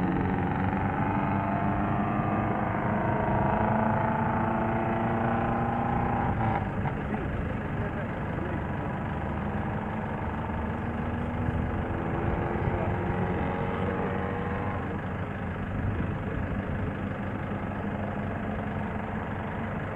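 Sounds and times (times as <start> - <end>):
heavy vehicle engine idling: 4.9 - 13.0, 14.6 - 19.9.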